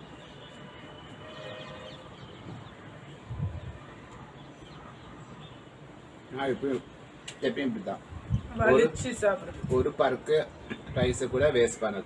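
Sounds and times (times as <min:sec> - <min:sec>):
birds chirping: 0:00.0 - 0:09.2.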